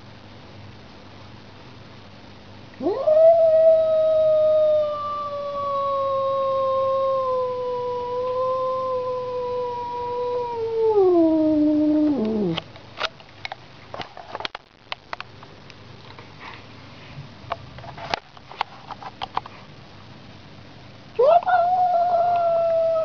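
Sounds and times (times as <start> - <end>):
cat yowling: 2.8 - 12.6, 21.2 - 23.0.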